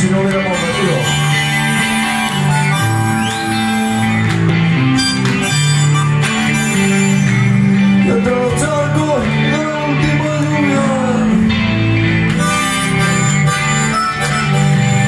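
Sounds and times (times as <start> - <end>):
rock band playing: 0.0 - 15.0
harmonica: 0.4 - 8.1, 12.2 - 15.0.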